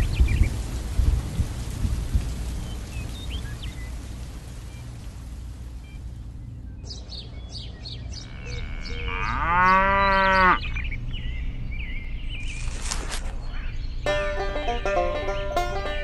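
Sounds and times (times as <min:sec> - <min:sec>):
cow mooing: 0:08.2 - 0:10.7.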